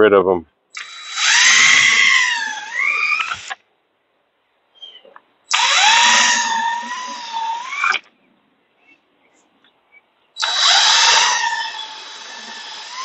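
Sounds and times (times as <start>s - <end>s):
power drill whining: 0.8s - 3.6s, 5.5s - 8.1s, 10.4s - 13.0s.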